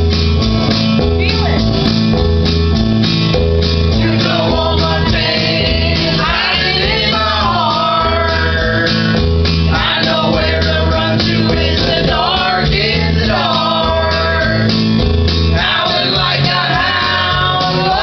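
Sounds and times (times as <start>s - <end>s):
guitar chords: 0.0s - 18.0s
people singing: 3.9s - 18.0s.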